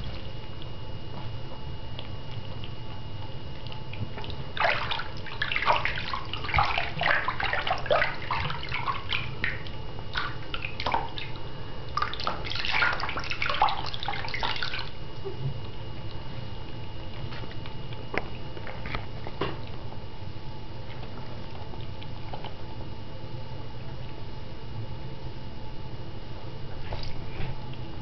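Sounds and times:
faint steady hum: 0.0 - 28.0
water splashing in a sink: 3.5 - 16.2, 26.8 - 27.6.

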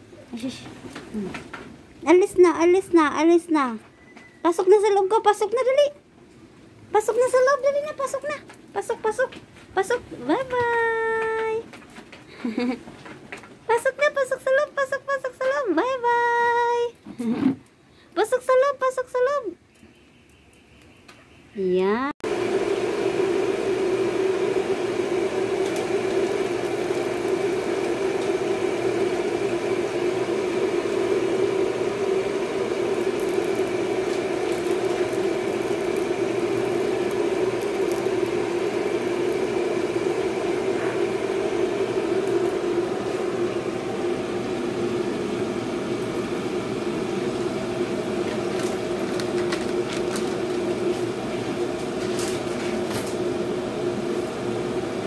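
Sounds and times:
motor whirring: 24.1 - 43.3.

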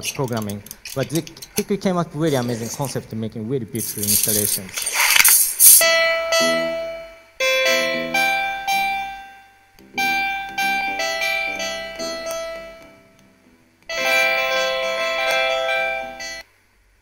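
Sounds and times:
electric piano music: 5.8 - 16.4.

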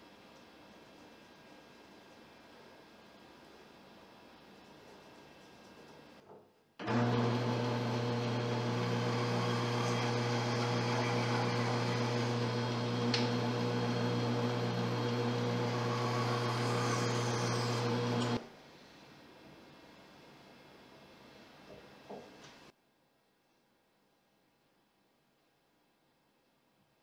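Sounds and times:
bandsaw cutting wood: 6.8 - 18.4.

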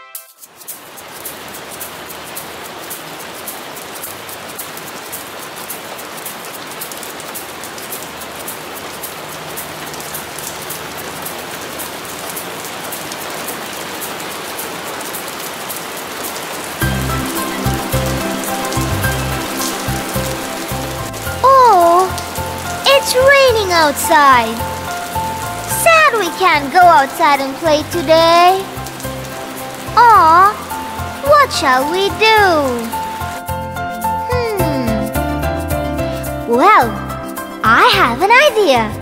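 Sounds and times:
music: 0.0 - 0.8, 16.8 - 39.0
steady rain falling: 0.3 - 39.0.

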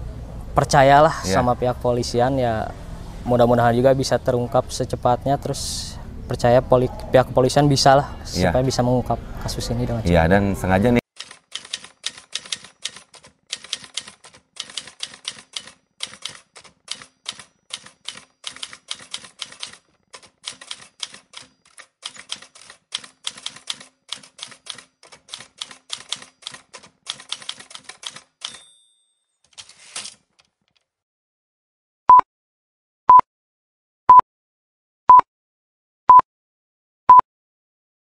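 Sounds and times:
clacking keystrokes: 11.2 - 28.7.

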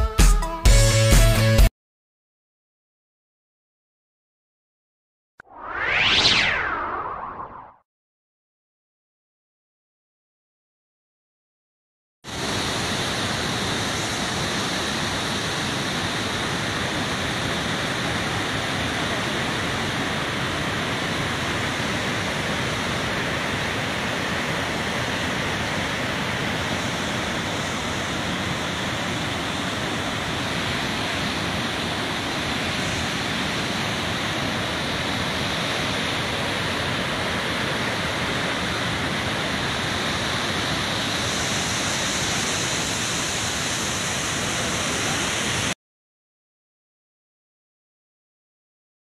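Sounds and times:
waterfall rushing over boulders: 12.3 - 45.8.

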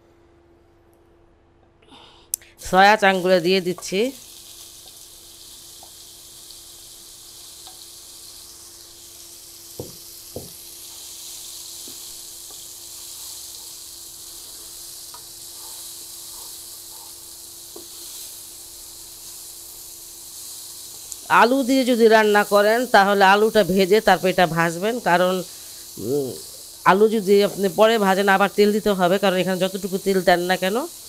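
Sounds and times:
food sizzling in oil: 2.6 - 31.0
stirring in a pan: 10.8 - 21.2.

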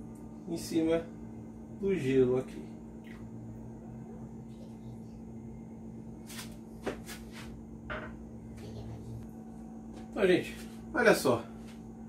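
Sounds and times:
steady low hum: 0.0 - 12.0
cup and glass knocking on counter: 7.9 - 8.2.

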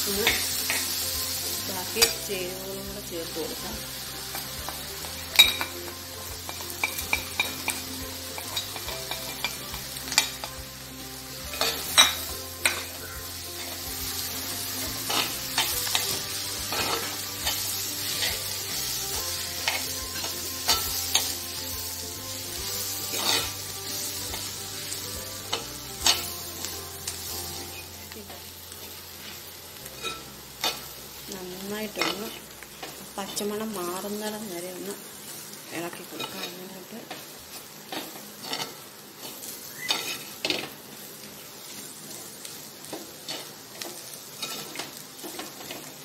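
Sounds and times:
onions sizzling in oil: 0.0 - 46.0
spoon scraping onions in pot: 22.6 - 23.6.

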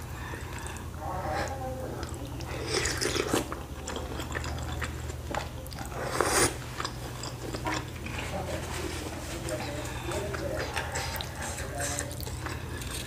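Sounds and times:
wet chewing: 0.0 - 13.0.

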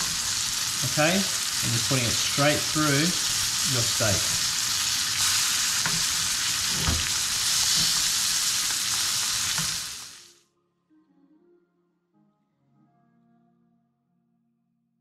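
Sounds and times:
steak sizzling in a pan: 0.0 - 10.4
spoon tapping a pan: 5.8 - 8.2.

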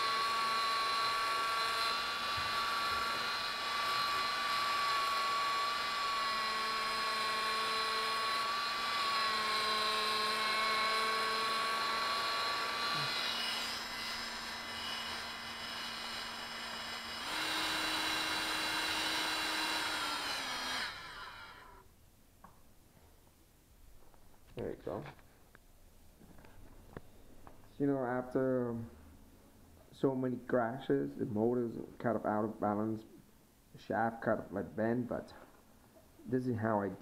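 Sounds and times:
electric motor whining: 0.0 - 21.8
file shaving spinning metal: 0.0 - 21.8.

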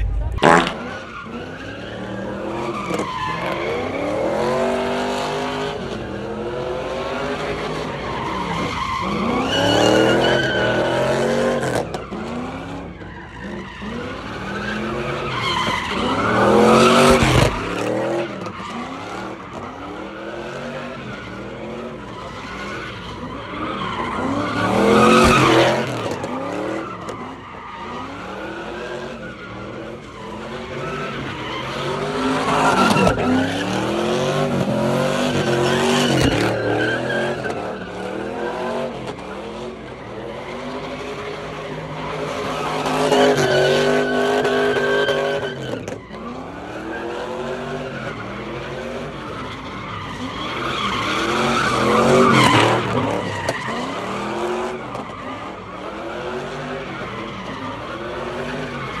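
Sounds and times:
car engine revving: 0.0 - 7.9
tires screeching: 0.0 - 59.0.

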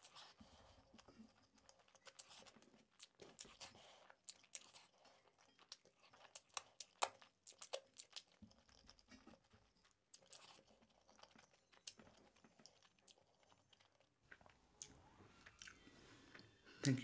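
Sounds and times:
person chewing: 0.0 - 17.0
wet mouth clicks and lip smacks: 6.3 - 9.3.

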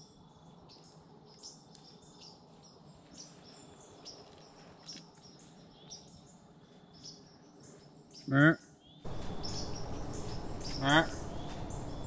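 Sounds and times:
small birds chirping: 0.0 - 12.0
faint low hum: 9.0 - 12.0.

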